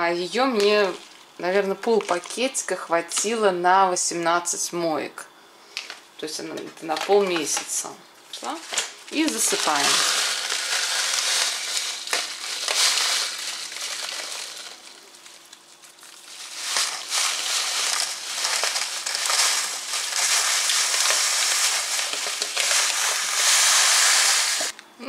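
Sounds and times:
plastic bag crinkling: 0:00.2 - 0:03.4, 0:06.9 - 0:24.7
salt crystals pouring: 0:08.5 - 0:24.7.

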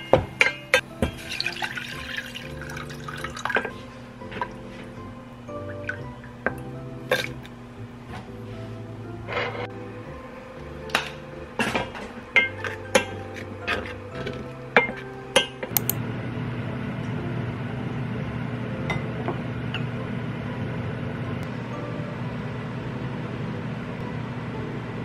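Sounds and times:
dishes and cutlery clinking: 0:00.0 - 0:02.1, 0:10.9 - 0:15.9
steady low hum: 0:02.6 - 0:25.0.

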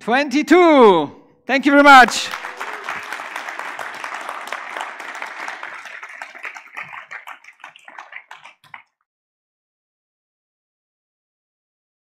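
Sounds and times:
audience applauding: 0:01.9 - 0:08.9.

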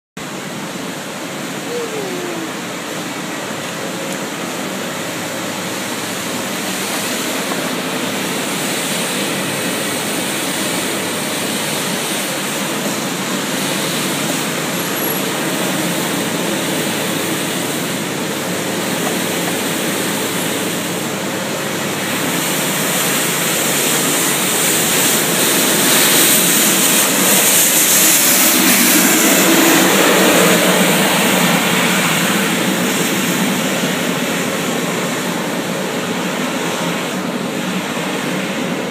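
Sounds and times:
street sweeper engine and brushes: 0:00.2 - 0:38.9.

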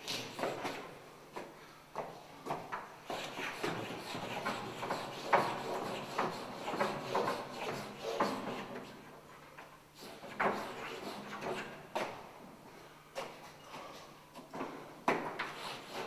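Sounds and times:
hand rubbing on chalkboard: 0:15.4 - 0:16.0.

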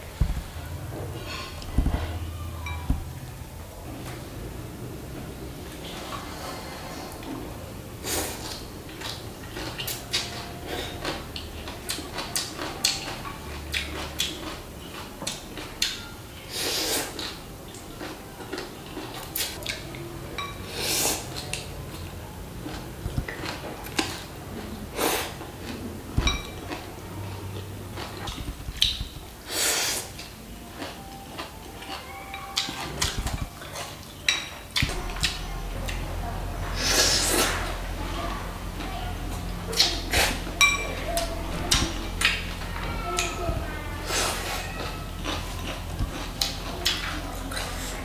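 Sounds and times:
chewing: 0:08.1 - 0:16.1, 0:16.8 - 0:20.0, 0:21.0 - 0:29.2, 0:29.8 - 0:36.1, 0:38.8 - 0:48.0.

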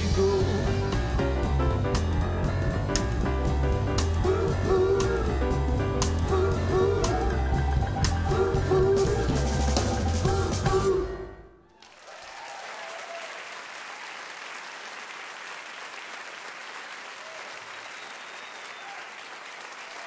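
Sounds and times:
live jazz band playing: 0:00.0 - 0:11.2
audience applauding: 0:11.7 - 0:20.0.

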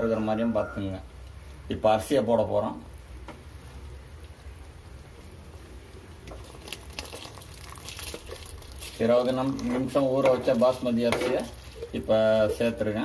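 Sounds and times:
pot bubbling and spattering: 0:05.7 - 0:13.0.

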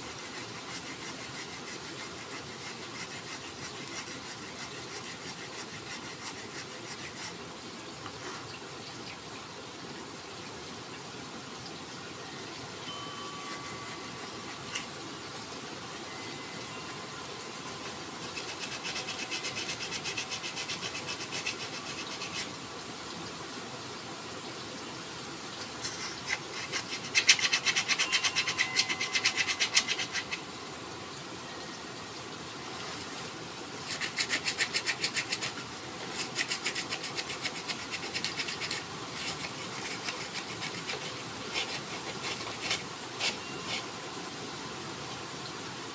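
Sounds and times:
sandpaper rubbing on wood: 0:00.0 - 0:07.4, 0:18.2 - 0:22.5, 0:25.8 - 0:30.4, 0:33.9 - 0:43.9.

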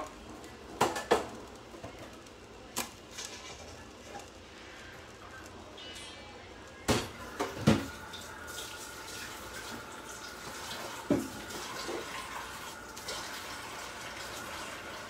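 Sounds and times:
water running from a tap: 0:07.0 - 0:15.0.

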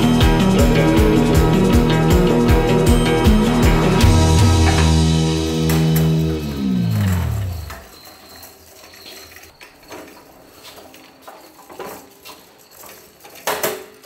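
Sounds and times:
rock music: 0:00.0 - 0:07.8.

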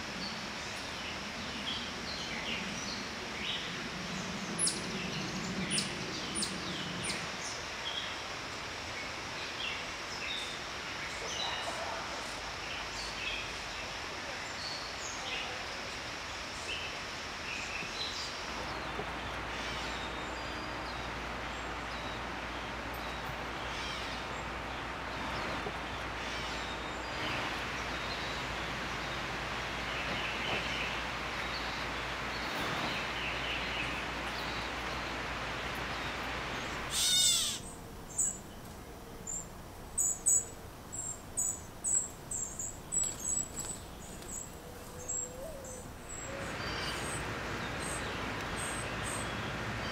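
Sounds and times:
background birds hiss: 0:00.0 - 0:49.9
fledgling songbirds calling: 0:00.2 - 0:08.1, 0:17.5 - 0:49.9
young bird high short calls: 0:36.9 - 0:38.3.

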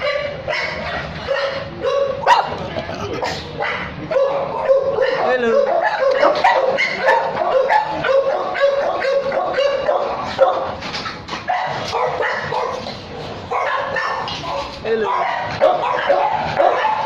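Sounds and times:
dogs barking and yelping: 0:00.0 - 0:17.0.

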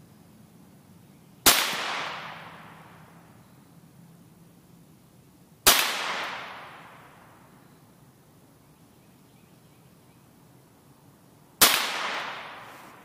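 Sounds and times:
rifle shots: 0:01.4 - 0:02.7, 0:05.6 - 0:06.9, 0:11.6 - 0:12.8.

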